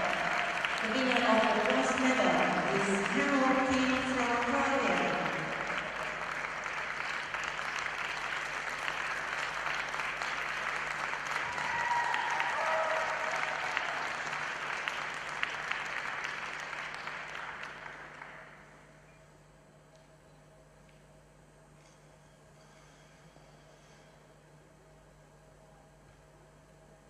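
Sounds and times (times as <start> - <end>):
crowd applauding: 0.0 - 18.8.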